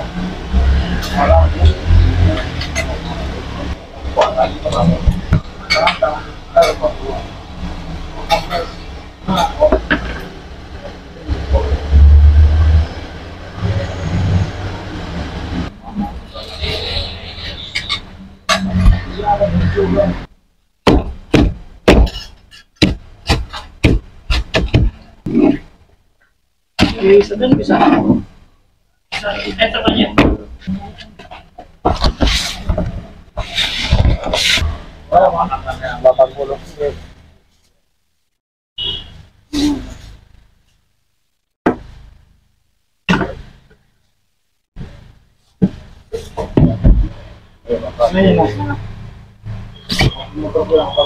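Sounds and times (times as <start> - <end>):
short knocks and thuds: 20.8 - 25.7, 45.6 - 47.3
cleaver chopping on wooden board: 20.9 - 22.2, 22.8 - 25.0.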